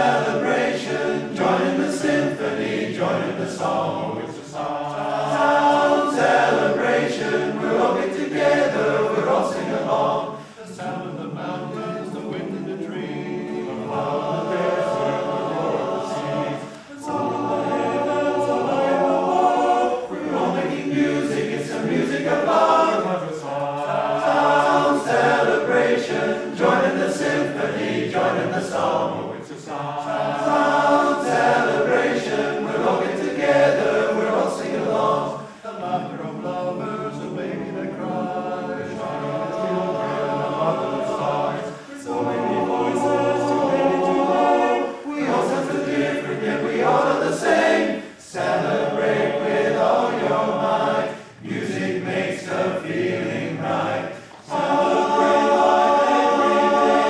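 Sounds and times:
men's chorus singing a cappella: 0.0s - 57.0s.

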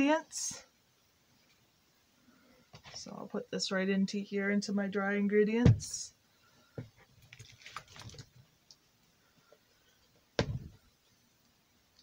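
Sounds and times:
liquid mixture pouring: 7.2s - 8.8s.

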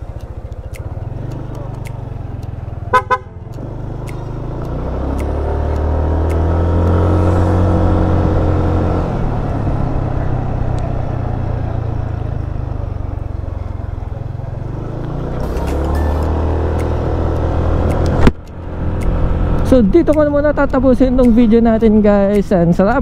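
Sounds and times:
horn toots: 2.9s - 3.5s.

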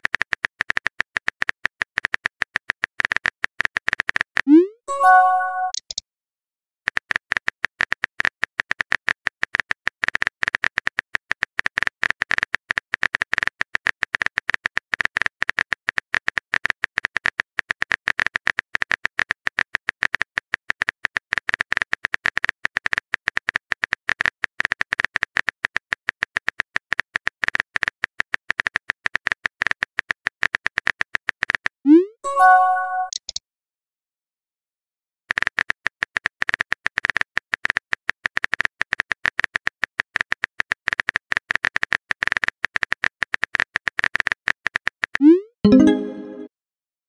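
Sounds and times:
phone keyboard typing clicks: 4.1s - 6.0s.

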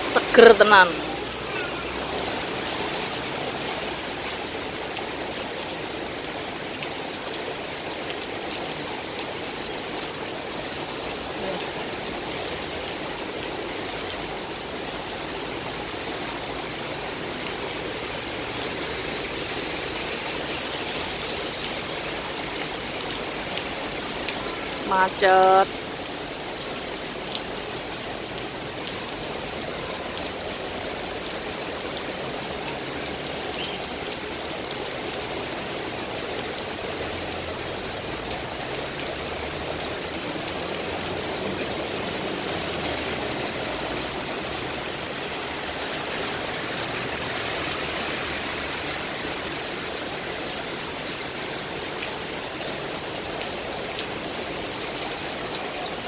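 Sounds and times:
heavy rain on paving: 0.0s - 56.0s.

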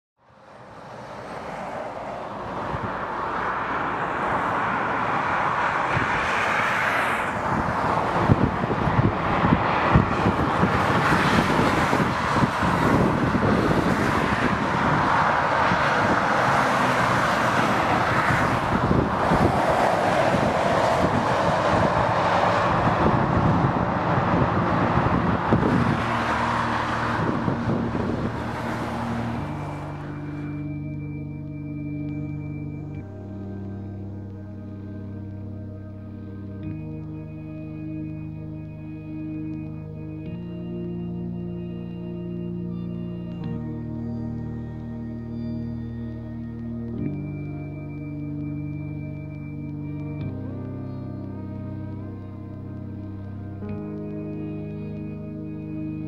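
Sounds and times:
motorway traffic rushing past: 0.2s - 56.0s.

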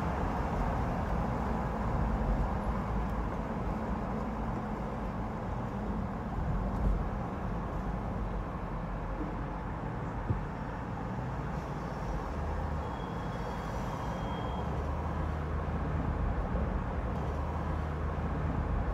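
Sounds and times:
traffic rumble: 0.0s - 18.9s.

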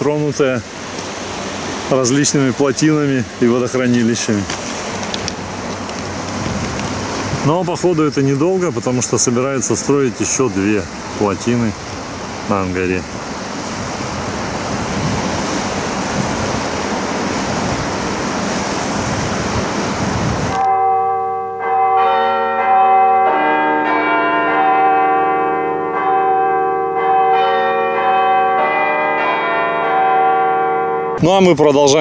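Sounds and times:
water rushing through spillway: 0.0s - 20.6s
chapel bells ringing: 20.6s - 32.0s.

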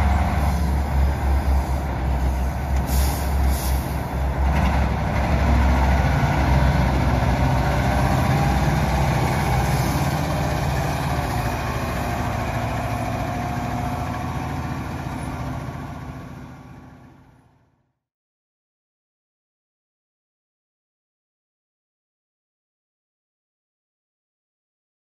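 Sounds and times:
diesel engine driving by: 0.0s - 17.9s.

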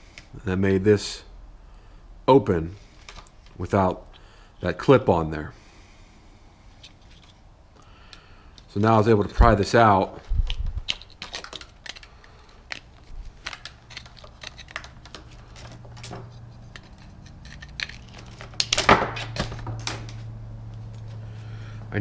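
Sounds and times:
low hum: 13.0s - 22.0s.

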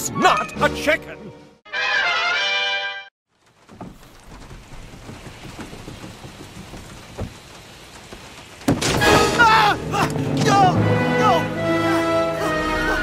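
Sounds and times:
steady rain: 3.3s - 13.0s
dull thud: 3.7s - 9.4s.

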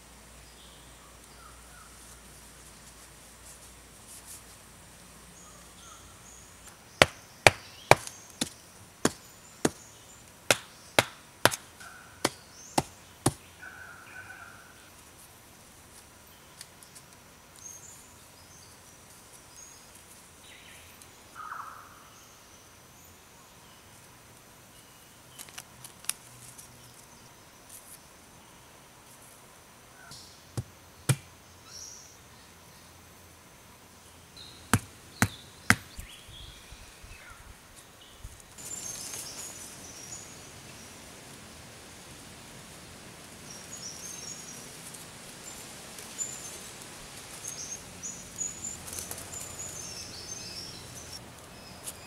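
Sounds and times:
stakes hammered into ground: 7.0s - 9.8s, 10.5s - 13.5s, 30.5s - 31.3s, 34.7s - 36.1s.

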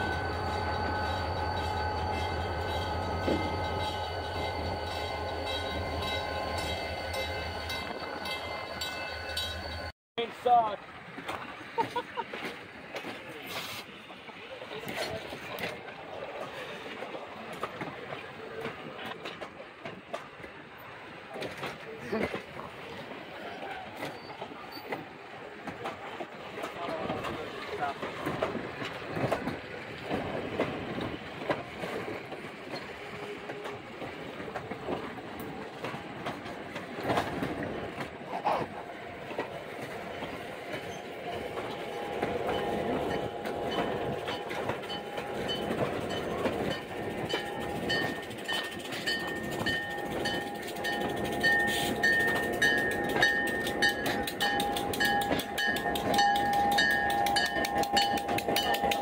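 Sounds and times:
high-pitched ringing tones: 0.0s - 9.9s
train wheels clicking over rail joints: 0.0s - 9.9s, 17.0s - 59.0s
train rumble: 0.0s - 59.0s.

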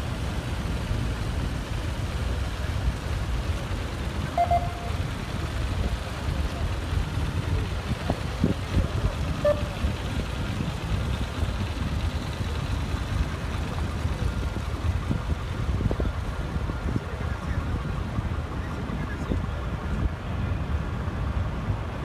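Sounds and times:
cars driving on pavement: 0.0s - 22.0s
wind buffeting microphone: 5.6s - 22.0s.

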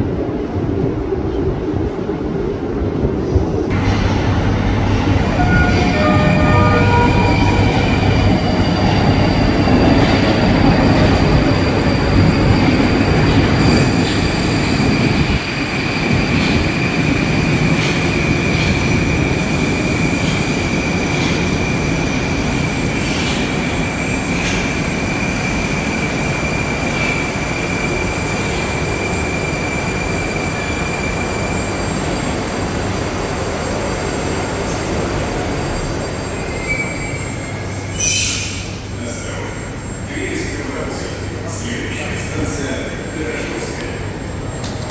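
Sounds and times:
metro train braking: 3.1s - 44.9s
high whine: 3.7s - 16.9s.

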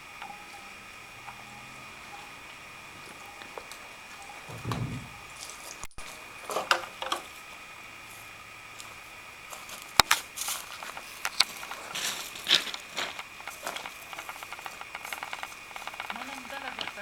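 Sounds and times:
irregular crunches and clicks: 10.0s - 17.0s.

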